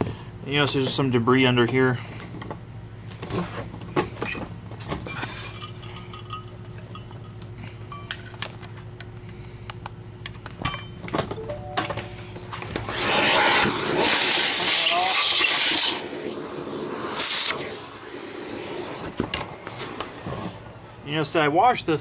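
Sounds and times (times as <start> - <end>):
rushing hiss of air: 13.1 - 19.1.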